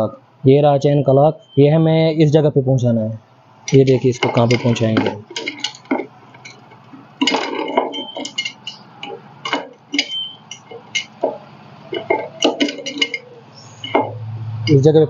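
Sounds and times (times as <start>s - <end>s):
metallic chain clinks and rattles: 3.7s - 14.8s.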